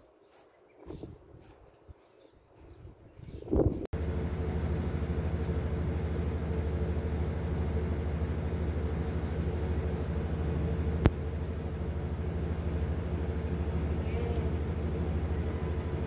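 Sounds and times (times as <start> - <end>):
engine humming steadily: 3.6 - 16.0.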